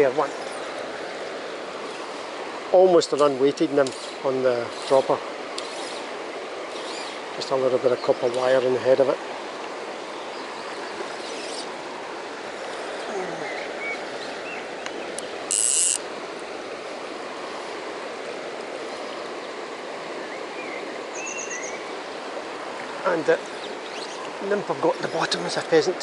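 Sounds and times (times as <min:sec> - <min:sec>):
stream running over gravel: 0:00.0 - 0:26.0
small birds chirping: 0:06.7 - 0:09.1, 0:09.9 - 0:11.8, 0:12.7 - 0:16.0, 0:18.8 - 0:25.8
loud high buzzing: 0:15.5 - 0:16.0
bird trill: 0:20.6 - 0:21.8.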